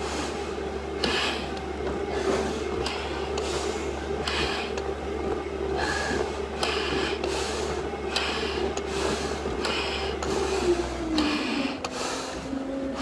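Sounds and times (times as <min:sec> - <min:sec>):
steady low hum: 0:00.0 - 0:13.0
hissing breaths in face mask: 0:01.0 - 0:01.5, 0:05.7 - 0:13.0.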